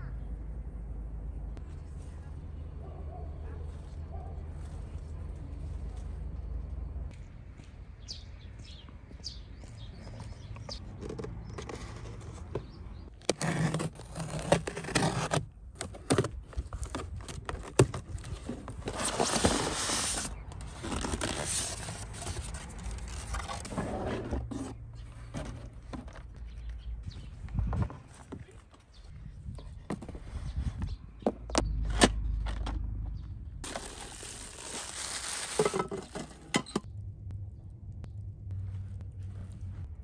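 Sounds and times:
cardboard flaps rustling and scraping: 0:10.7 - 0:26.3.

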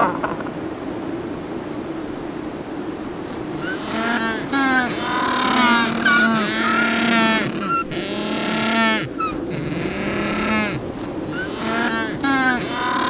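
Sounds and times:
penguins calling: 0:03.4 - 0:13.0.

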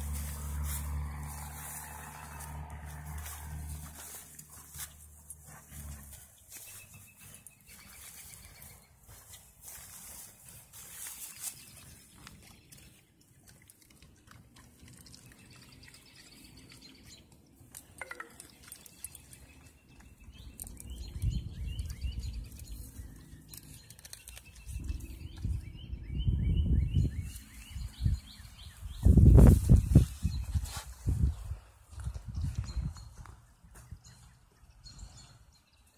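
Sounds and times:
birds chirping: 0:00.0 - 0:35.9
microphone brushing through grass: 0:27.0 - 0:32.9.

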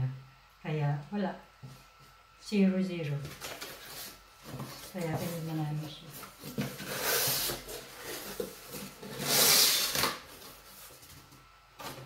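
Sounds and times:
box contents rustling: 0:03.3 - 0:12.0
cardboard flaps scraping: 0:03.3 - 0:12.0.

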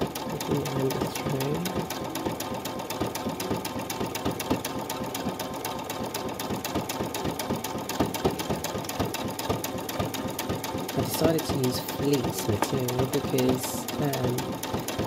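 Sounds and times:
sewing machine stitching: 0:00.0 - 0:15.0.

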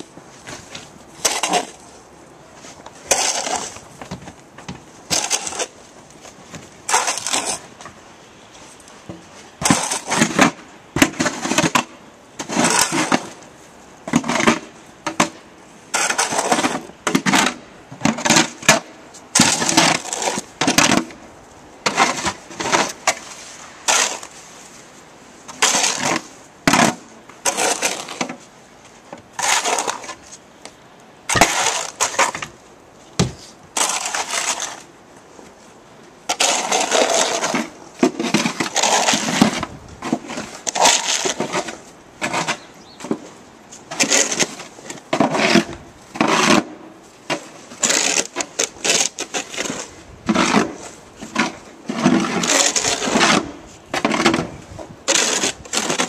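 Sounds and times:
snow shovels scraping snow: 0:00.2 - 0:02.0, 0:02.6 - 0:03.9, 0:05.0 - 0:05.8, 0:06.8 - 0:07.8, 0:09.3 - 0:11.8, 0:12.4 - 0:13.4, 0:15.9 - 0:18.6, 0:19.4 - 0:21.2, 0:21.9 - 0:28.5, 0:29.3 - 0:30.4, 0:31.3 - 0:32.5, 0:33.3 - 0:34.9, 0:36.3 - 0:56.0.

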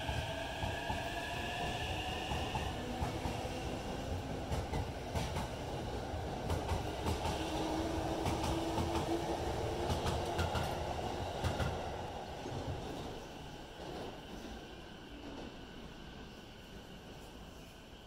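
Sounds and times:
train wheels rumbling and clicking: 0:00.0 - 0:15.6
train whine: 0:00.0 - 0:18.0.

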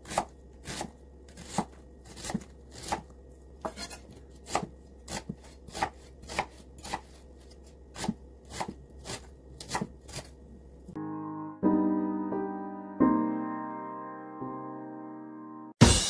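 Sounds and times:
knife slicing onion on board: 0:00.0 - 0:10.4.

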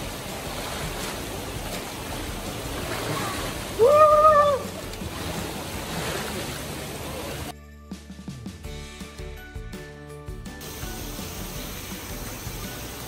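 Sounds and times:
man splashing through water: 0:00.0 - 0:07.5
river rushing: 0:00.0 - 0:07.5
high voice calling out: 0:03.8 - 0:04.8.

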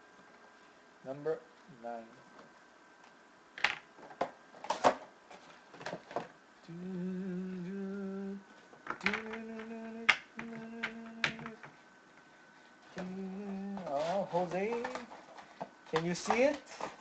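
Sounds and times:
man humming low notes: 0:06.6 - 0:11.7, 0:12.9 - 0:15.1.

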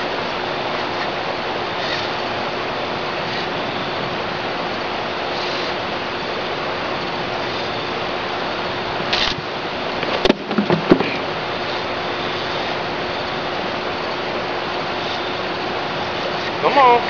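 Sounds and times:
sharp knocks: 0:10.1 - 0:11.2.

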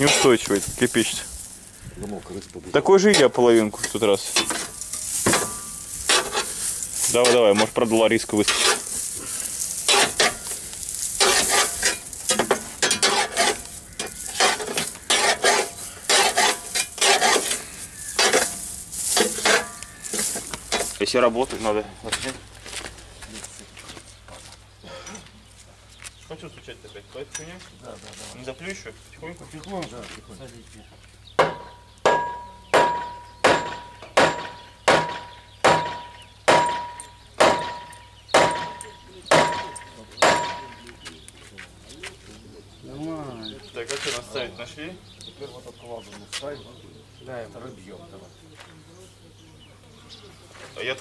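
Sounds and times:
metal rod scraping straw and dirt: 0:00.0 - 0:21.8
hammer blows on metal: 0:31.4 - 0:40.9.

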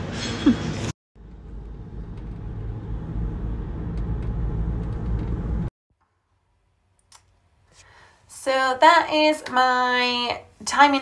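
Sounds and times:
car driving rumble from inside: 0:01.2 - 0:05.7.

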